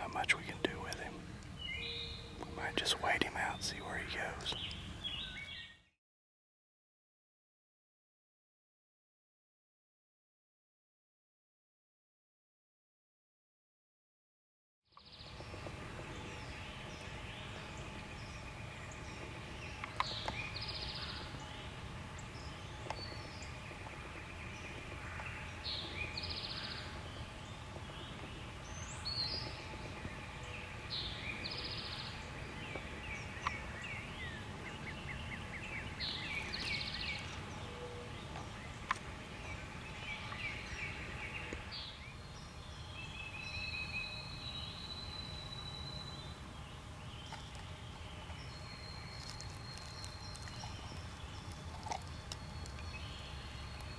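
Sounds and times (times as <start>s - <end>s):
songbirds chirping: 0.0s - 6.0s, 14.9s - 53.9s.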